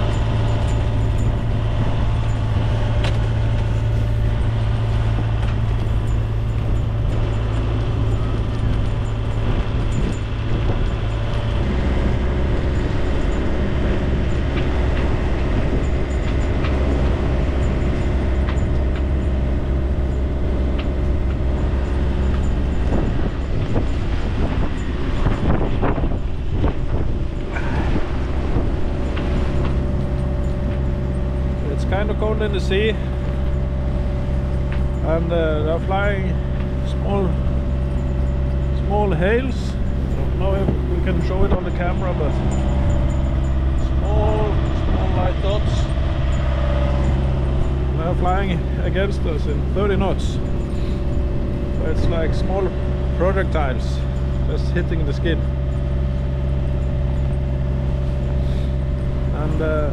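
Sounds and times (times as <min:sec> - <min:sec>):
boat engine drone: 0:00.0 - 0:59.9
wind on microphone: 0:00.0 - 0:59.9.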